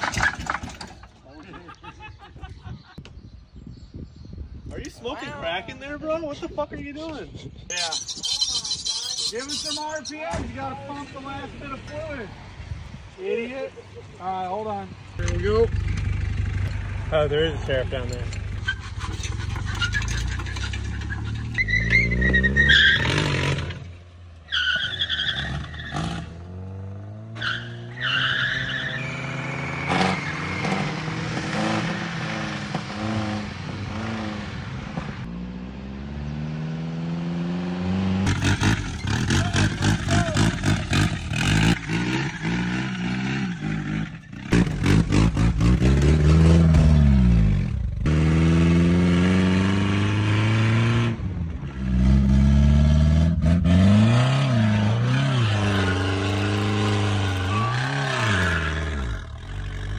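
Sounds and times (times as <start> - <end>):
truck engine revving: 15.2 - 24.0, 24.6 - 59.9.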